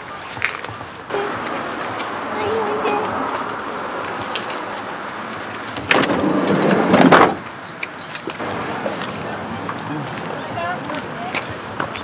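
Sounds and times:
sliding van door rolling and banging: 5.7 - 7.5.

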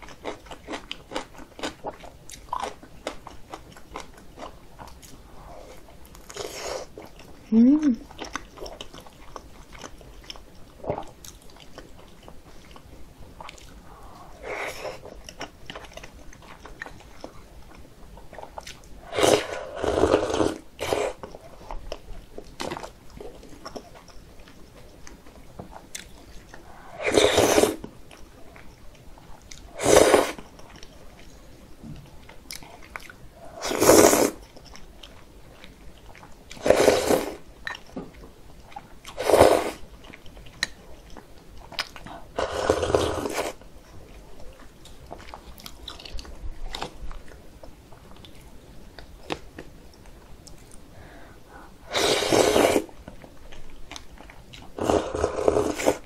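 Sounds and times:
quiet chewing: 0.0 - 52.0, 52.8 - 56.0
slurping noodles: 19.1 - 21.2, 26.7 - 27.8, 29.8 - 30.4, 33.5 - 34.4, 36.6 - 37.4, 39.2 - 39.8, 42.4 - 43.6, 51.8 - 52.9, 54.8 - 56.0.

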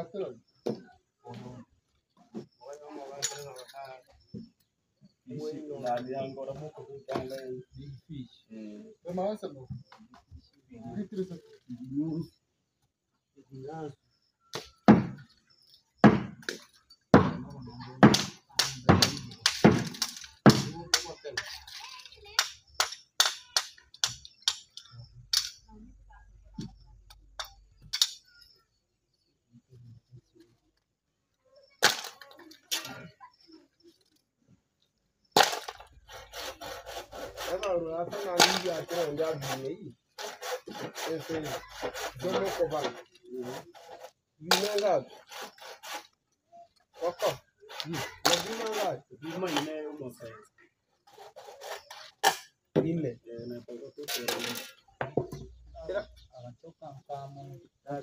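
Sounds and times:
handsaw cutting wood: 35.4 - 46.2, 47.0 - 49.7, 51.0 - 52.3.

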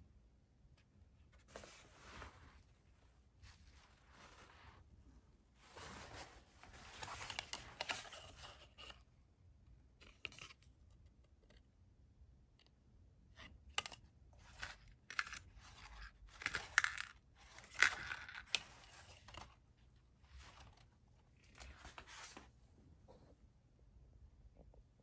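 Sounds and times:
fabric and card tag rustling: 5.6 - 9.0, 13.8 - 22.5.

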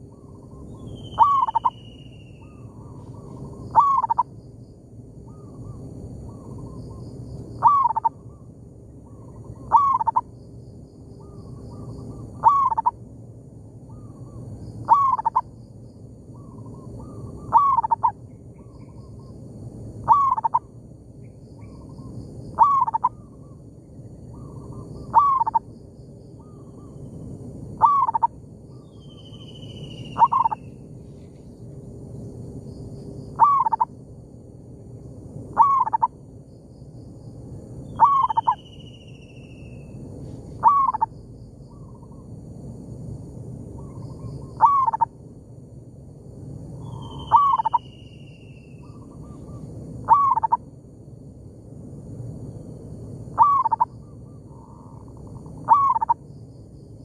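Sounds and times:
high chirps of small birds: 0.1 - 4.2, 27.8 - 30.8, 37.8 - 40.0, 46.8 - 50.6
dove cooing loudly: 1.2 - 1.7, 3.7 - 4.2, 7.6 - 8.2, 9.6 - 10.2, 12.4 - 12.9, 14.9 - 15.4, 17.0 - 18.1, 20.0 - 20.6, 22.6 - 23.2, 25.1 - 25.6, 27.8 - 28.3, 30.2 - 30.6, 33.4 - 33.9, 35.6 - 36.1, 38.0 - 38.6, 40.6 - 41.1, 44.6 - 45.1, 47.2 - 47.8, 49.2 - 50.6, 53.4 - 53.9, 55.6 - 56.2
fainter dove coos answering: 35.6 - 36.1, 40.6 - 41.1, 50.1 - 50.6, 55.6 - 56.2.

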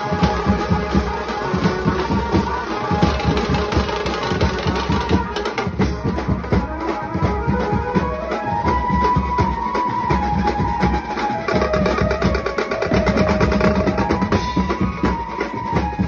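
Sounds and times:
fast drumming: 0.0 - 16.0
held melody line: 0.0 - 16.0.

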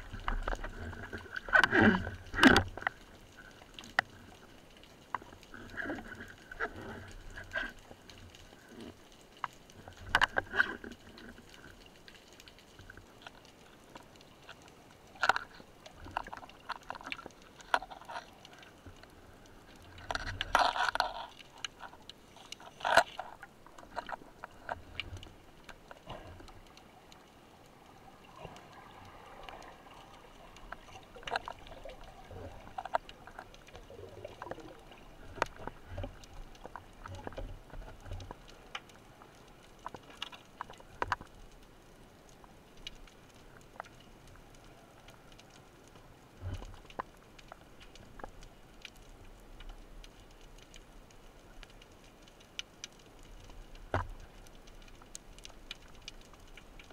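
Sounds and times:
rush of water: 0.0 - 56.9
underwater water movement: 0.0 - 56.9.

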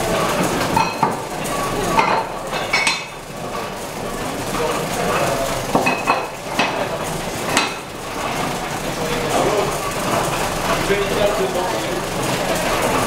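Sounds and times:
metallic clanks of wine press: 0.6 - 3.2.

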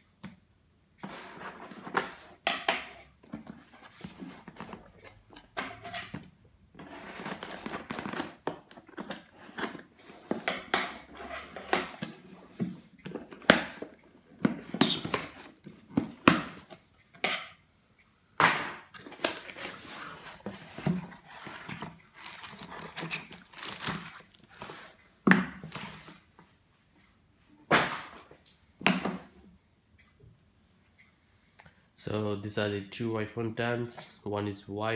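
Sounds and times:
cardboard and packaging rustling: 1.0 - 2.4, 3.2 - 5.5, 6.1 - 16.8, 18.9 - 26.3.

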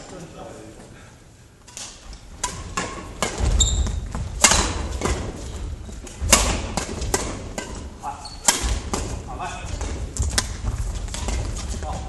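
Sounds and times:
rackets striking shuttlecock: 1.6 - 12.0
shoe squeak: 3.4 - 4.1, 8.0 - 8.5
footsteps on wooden floor: 8.7 - 12.0.

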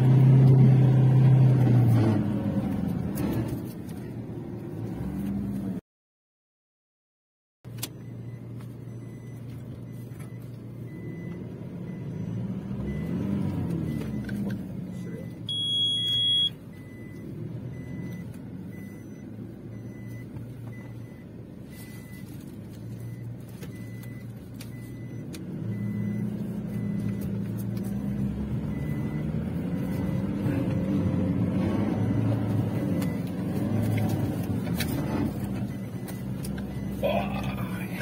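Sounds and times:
faint high beep: 15.0 - 17.2.

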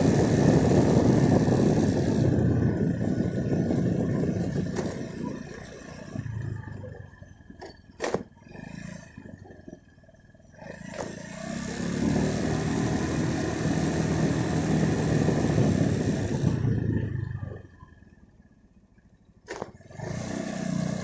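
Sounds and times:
wind buffeting microphone: 0.0 - 7.1, 12.6 - 17.7.

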